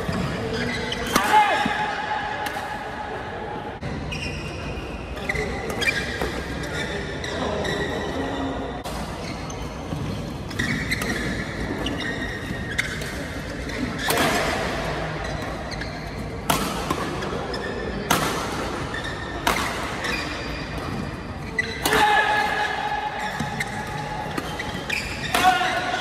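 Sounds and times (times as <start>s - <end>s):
shoes squeaking on court: 0.0s - 1.1s, 4.0s - 14.3s, 15.2s - 16.4s, 17.2s - 18.1s, 18.9s - 22.0s, 22.6s - 26.0s
racket striking shuttlecock: 19.4s - 20.1s.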